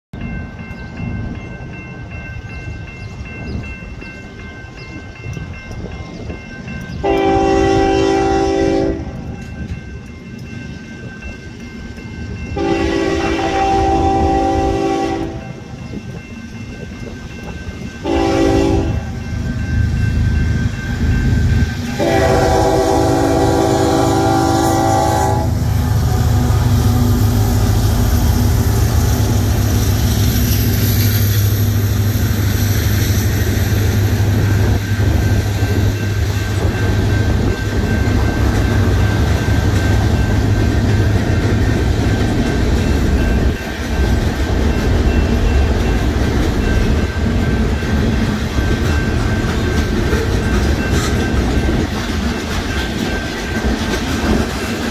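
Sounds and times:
crossing signal bell ringing: 0.2 - 54.9
locomotive horn blasts: 7.0 - 9.3, 12.6 - 15.6, 18.0 - 19.2, 22.0 - 26.6.

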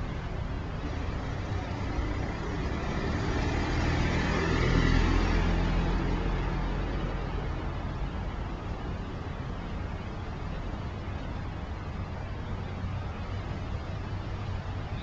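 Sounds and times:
vehicle passing by: 0.8 - 8.0.

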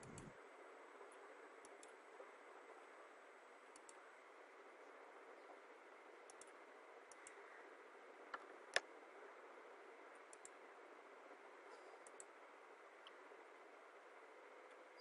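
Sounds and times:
computer mouse clicks: 0.0 - 0.3, 1.6 - 2.0, 3.7 - 4.0, 6.2 - 7.4, 10.2 - 10.6, 11.8 - 12.4.

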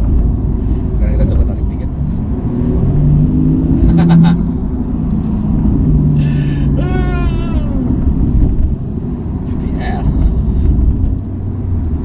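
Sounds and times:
car engine accelerating: 0.0 - 12.0
person exclaiming: 6.2 - 8.2, 9.7 - 10.6.

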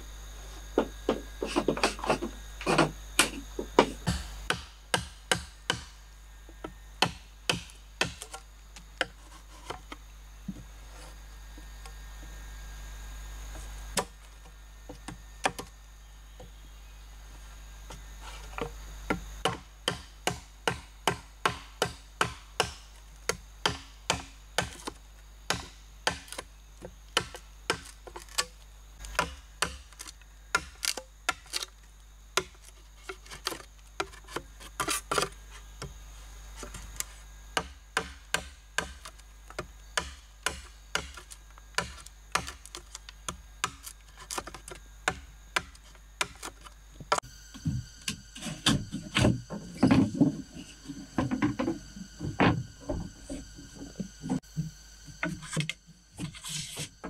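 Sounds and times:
machete chopping bamboo: 1.5 - 6.0, 7.0 - 9.9, 19.1 - 26.5, 27.2 - 31.7, 32.4 - 36.0, 36.6 - 47.3.

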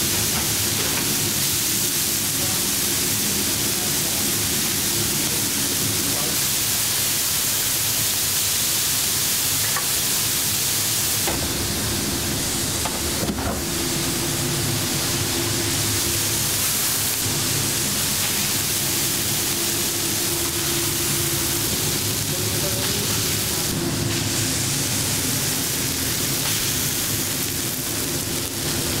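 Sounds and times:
kitchen hum: 0.0 - 29.0
meat sizzling on a griddle: 0.0 - 29.0
steady low tone: 11.2 - 22.8.

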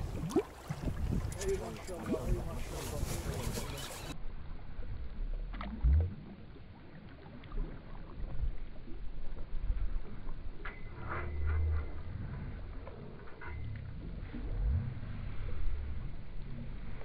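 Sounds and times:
boat rumbling and knocking: 0.0 - 4.2.

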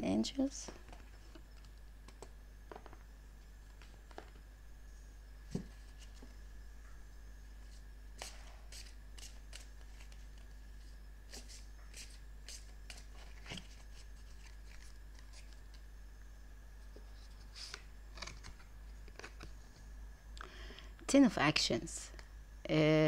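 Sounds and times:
cards being shuffled: 7.7 - 15.8, 17.2 - 19.6.

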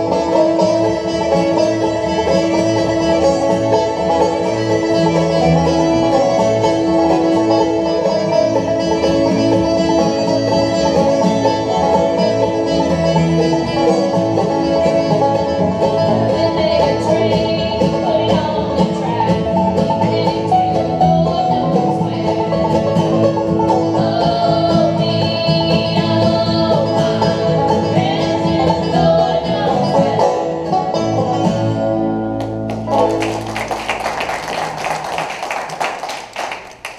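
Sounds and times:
bluegrass band playing: 0.0 - 36.9
applause: 32.4 - 36.9.

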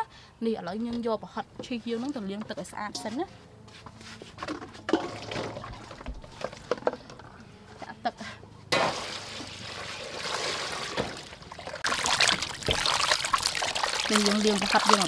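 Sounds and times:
water pouring into metal bowl: 8.9 - 15.0.

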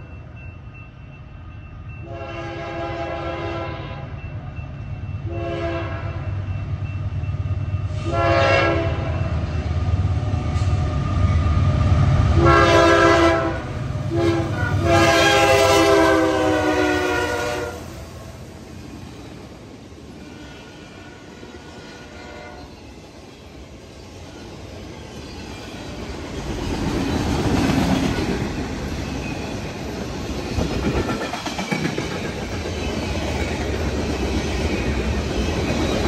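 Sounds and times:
train engine and wheels rumbling: 0.0 - 36.0
locomotive air horn blasts: 2.0 - 4.1, 5.3 - 6.3, 8.0 - 9.2, 12.4 - 17.9, 20.2 - 22.7.

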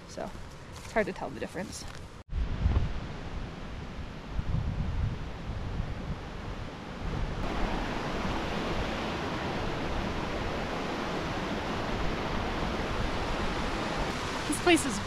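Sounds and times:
wind rumbling on microphone: 1.8 - 15.0
stream rushing: 7.2 - 15.0.

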